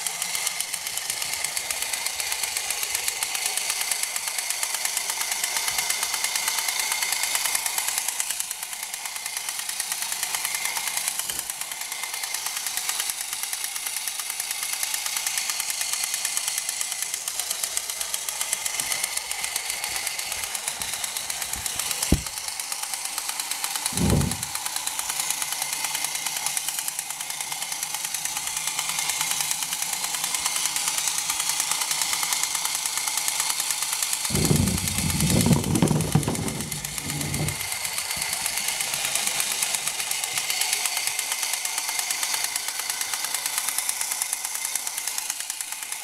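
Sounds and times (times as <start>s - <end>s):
toy helicopter motor whirring: 0.0s - 46.0s
low thump: 34.3s - 37.7s.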